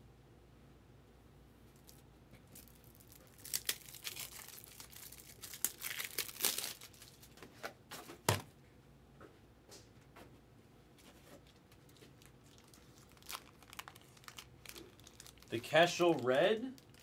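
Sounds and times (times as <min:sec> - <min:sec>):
packaging crinkly tearing: 0:02.6 - 0:07.4, 0:11.4 - 0:17.0.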